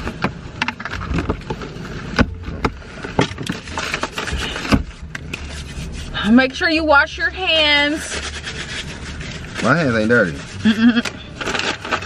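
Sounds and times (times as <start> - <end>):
paper bags rustling and crinkling: 9.1 - 10.7, 11.3 - 12.0.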